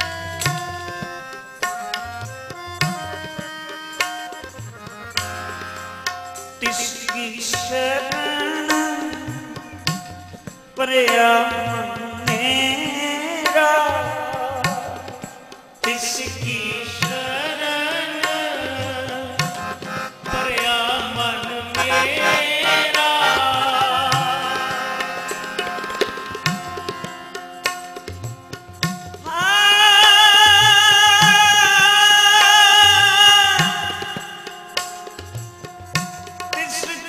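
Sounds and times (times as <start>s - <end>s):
harmoniums: 0.0s - 37.0s
tabla beat: 0.0s - 37.0s
hymn singing: 19.9s - 25.6s.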